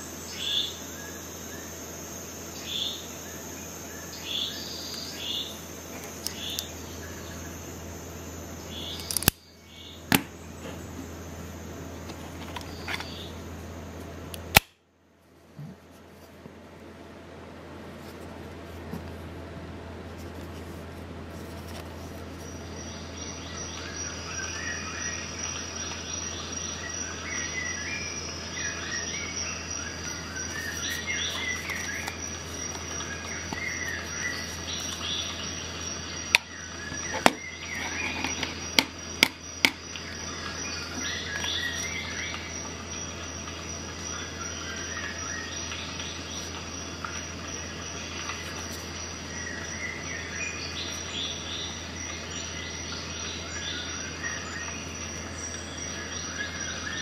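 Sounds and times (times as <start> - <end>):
insects chirring: 0.0 - 14.7, 17.0 - 57.0
birds chirping: 2.5 - 13.6, 22.4 - 57.0.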